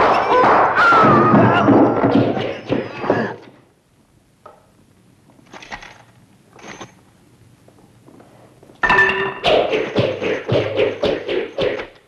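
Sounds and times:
nunchaku swishing: 9.4s - 12.0s.

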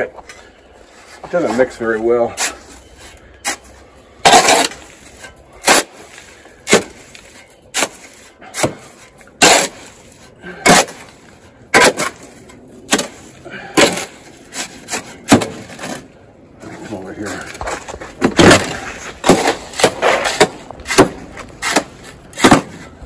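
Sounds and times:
shovel scraping dry sand mix: 18.7s - 23.0s.

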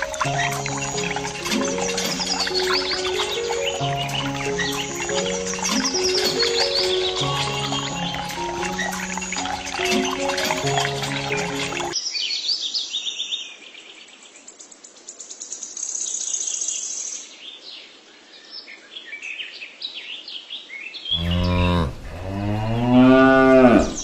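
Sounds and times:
small birds chirping: 0.0s - 22.4s
cow mooing: 21.1s - 24.0s.

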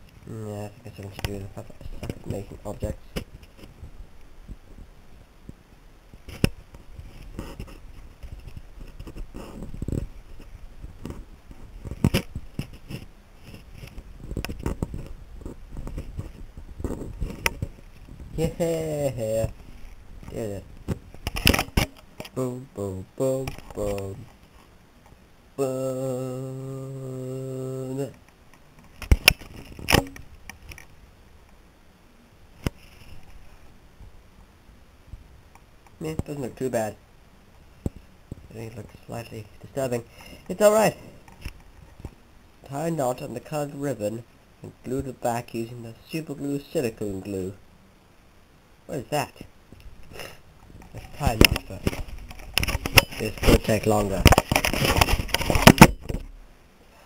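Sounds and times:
faint handling noise: 0.0s - 22.6s, 23.2s - 25.2s, 28.0s - 31.7s, 32.5s - 47.6s, 48.9s - 57.0s
paper rustling: 51.0s - 56.0s.

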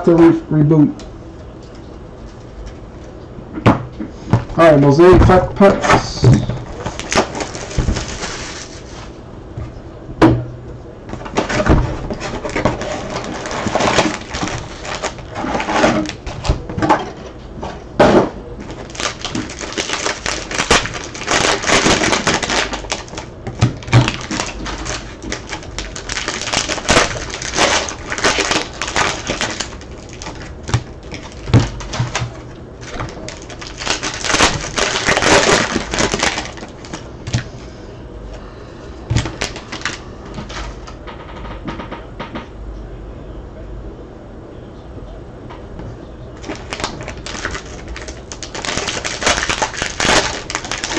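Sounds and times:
wrapper crinkling: 6.6s - 9.2s, 11.2s - 16.7s, 18.6s - 37.4s, 39.2s - 40.8s, 46.4s - 50.9s
cards rustling: 18.6s - 37.5s, 46.4s - 50.9s.

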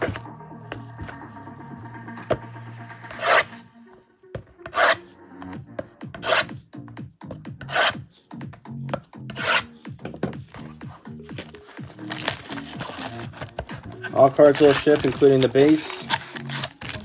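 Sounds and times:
blade slicing plastic wrap: 11.8s - 13.5s, 14.3s - 17.0s.

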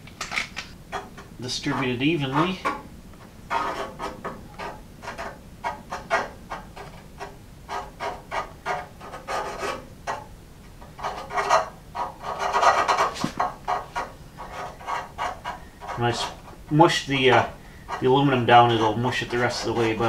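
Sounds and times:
hand spreader scraping adhesive: 3.5s - 10.2s, 10.9s - 20.0s.

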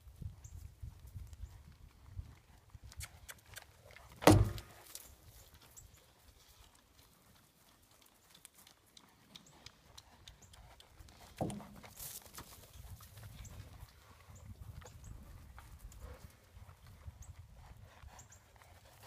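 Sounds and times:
horse hooves on dry ground: 0.0s - 19.0s
hoof knocking plastic barrel: 4.2s - 4.8s, 11.4s - 11.9s.

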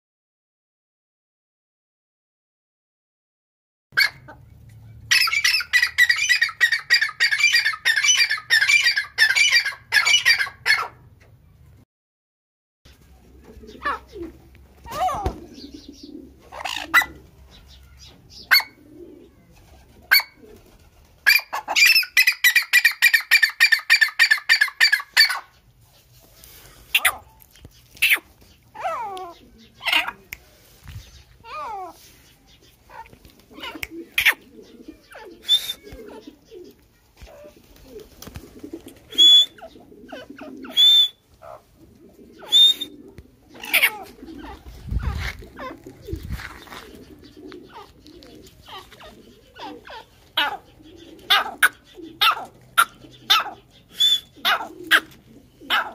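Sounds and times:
soft bird chirps: 15.5s - 16.3s
bird harsh whistled calls: 35.3s - 35.9s, 39.1s - 39.7s, 40.7s - 41.2s, 42.4s - 43.0s, 53.9s - 54.4s.

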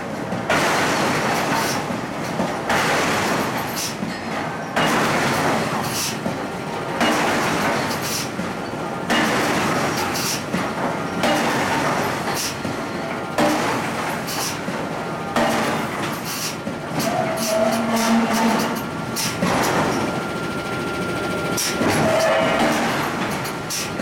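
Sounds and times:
machinery rumble: 6.4s - 24.0s
metallic squeals: 17.0s - 23.9s.

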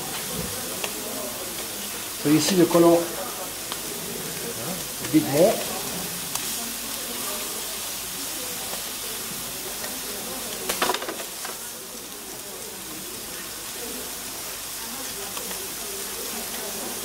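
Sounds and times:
scallops sizzling in a pan: 0.0s - 17.0s
metal tongs clicking on pan: 0.1s - 1.0s, 9.8s - 11.6s, 15.3s - 15.6s.

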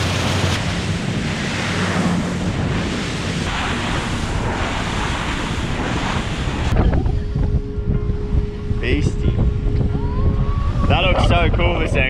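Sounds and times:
water rushing: 0.0s - 6.8s
powerboat running at speed: 0.0s - 12.0s
wind buffeting microphone: 0.0s - 12.0s.

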